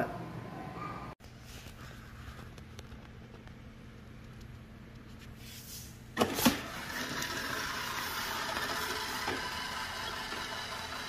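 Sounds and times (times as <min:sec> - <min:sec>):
robot vacuum motor and brushes: 0:06.2 - 0:11.0.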